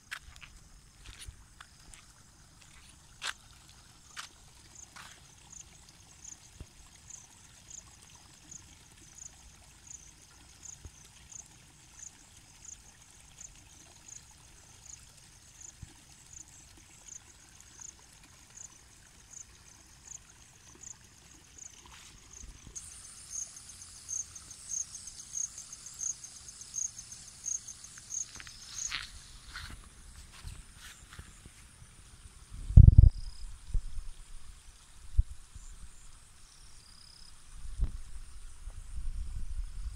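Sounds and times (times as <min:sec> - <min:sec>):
insects chirping: 0:00.0 - 0:39.9
louder insect chirping faster: 0:21.6 - 0:29.6.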